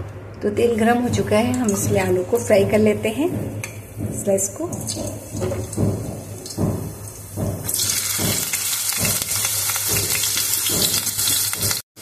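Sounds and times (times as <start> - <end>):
potato slices sizzling in oil: 7.7 - 11.8.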